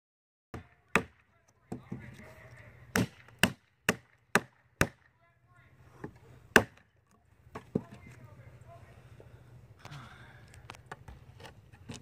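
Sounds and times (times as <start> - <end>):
knife chopping into wood: 0.5 - 1.1, 2.9 - 5.0, 6.0 - 6.8.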